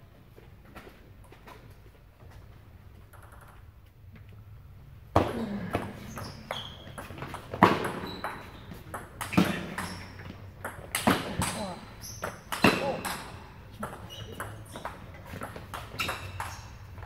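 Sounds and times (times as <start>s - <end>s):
table tennis rally clicks: 3.1s - 3.9s, 6.1s - 17.0s.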